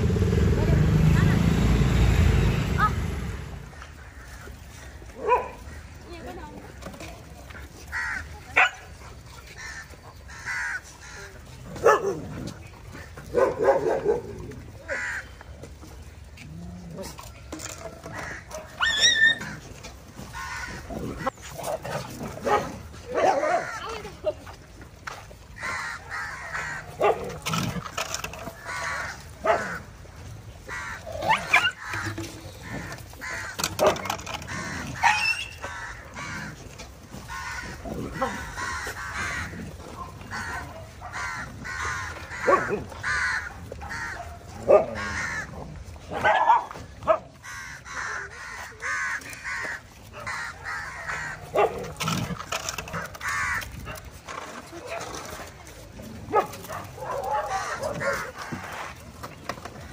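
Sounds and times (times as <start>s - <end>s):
people's voices: 0.0s - 4.0s
dog barking: 5.2s - 5.6s, 8.6s - 8.8s, 11.8s - 12.2s, 13.3s - 14.3s, 22.4s - 23.8s, 27.0s - 27.3s, 29.4s - 29.8s, 43.9s - 45.0s, 46.1s - 47.3s, 51.5s - 51.9s, 56.3s - 58.2s
birds cawing: 7.9s - 8.3s, 9.6s - 11.4s, 14.8s - 15.4s, 18.0s - 21.5s, 25.6s - 27.0s, 28.6s - 29.9s, 30.6s - 44.3s, 45.0s - 45.6s, 47.4s - 51.6s, 52.6s - 54.0s.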